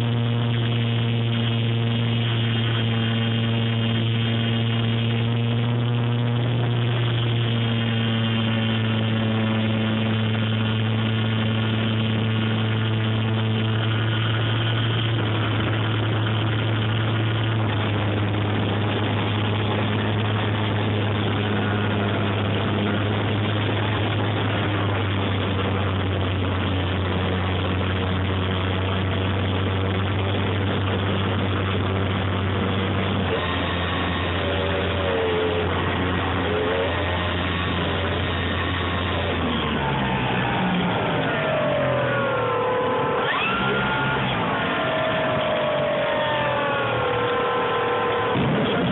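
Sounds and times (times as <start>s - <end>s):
model plane motor whine: 0.0s - 48.9s.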